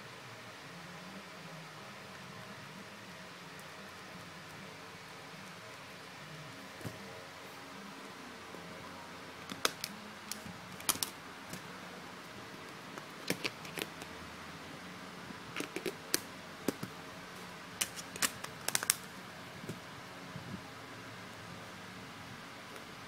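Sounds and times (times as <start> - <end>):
faint steady hiss: 0.0 - 23.0
plastic cover clicks and snaps: 9.4 - 11.6, 17.8 - 19.0.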